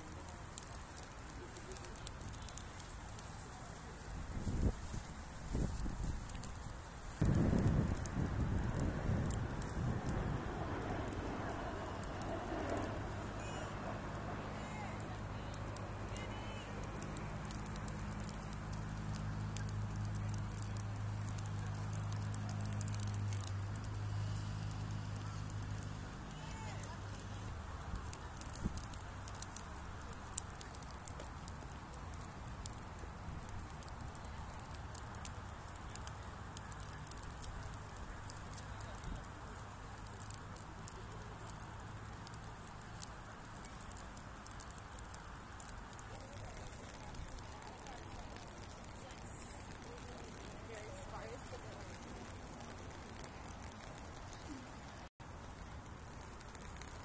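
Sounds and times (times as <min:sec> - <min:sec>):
distant jet aircraft rumble: 0:00.0 - 0:57.0
raindrops pattering: 0:00.0 - 0:57.0
sharp crackling clicks: 0:00.0 - 0:57.0
propeller airplane engine droning: 0:07.2 - 0:29.1.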